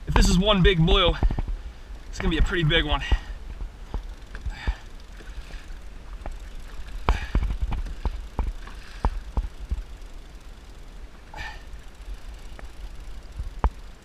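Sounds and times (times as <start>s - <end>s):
wind rumble on microphone: 0.0s - 10.1s
waves slapping kayak hull: 0.5s - 10.0s.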